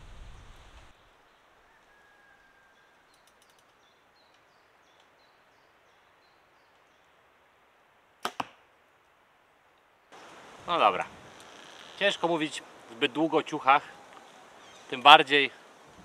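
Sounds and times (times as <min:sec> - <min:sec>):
faint bird chirps: 0:00.3 - 0:07.2, 0:13.8 - 0:15.0
arrow striking target: 0:08.2 - 0:08.6
bow shot cracks: 0:08.2 - 0:08.7.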